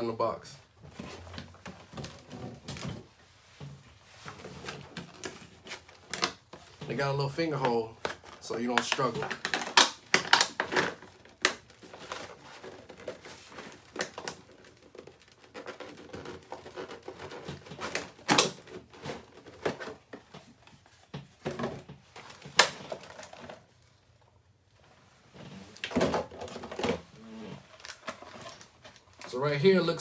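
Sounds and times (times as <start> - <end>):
packaging rustling: 7.8 - 21.1, 25.7 - 29.5.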